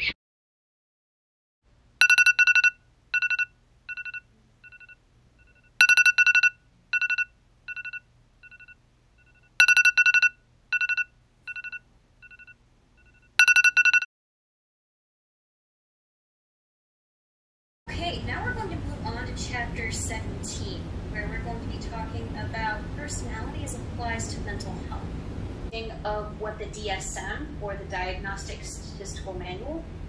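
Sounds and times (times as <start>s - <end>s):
smartphone electronic tone: 2.0s - 14.1s.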